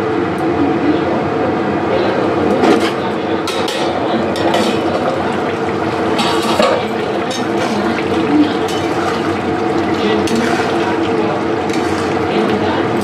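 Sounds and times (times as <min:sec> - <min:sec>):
curry simmering and bubbling: 0:04.2 - 0:12.7.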